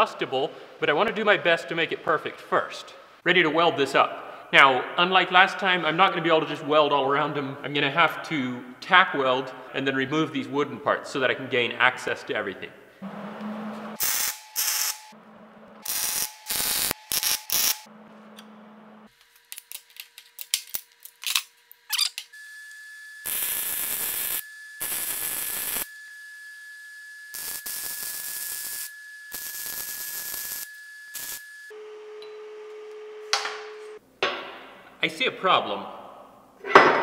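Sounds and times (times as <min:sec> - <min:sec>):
arc welding: 0:14.0 - 0:15.2, 0:15.8 - 0:17.9, 0:22.2 - 0:31.7.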